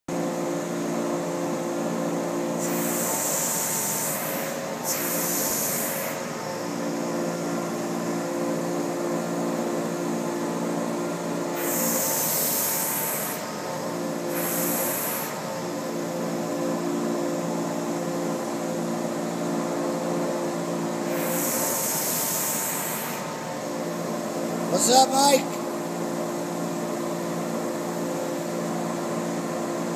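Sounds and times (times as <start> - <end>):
carpet-cleaning machine drone: 0.1 - 29.9
loud hissing suction: 11.6 - 13.4, 14.3 - 15.4.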